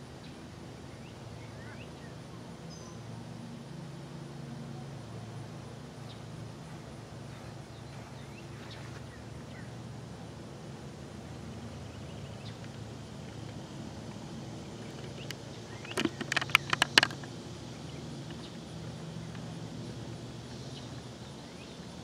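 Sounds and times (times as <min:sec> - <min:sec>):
steady low hum: 0:00.0 - 0:22.0
rapid sharp clicks: 0:14.8 - 0:17.4.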